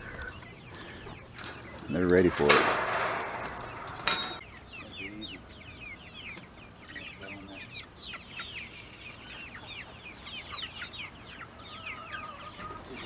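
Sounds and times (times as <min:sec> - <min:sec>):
chickens making high calls: 0:00.0 - 0:02.1, 0:03.4 - 0:13.0
low chicken clucks: 0:09.3 - 0:13.0.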